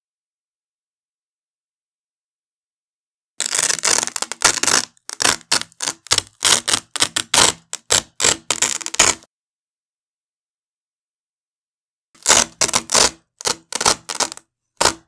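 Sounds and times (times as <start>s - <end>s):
velcro strap ripping: 3.4s - 9.3s, 12.2s - 15.0s.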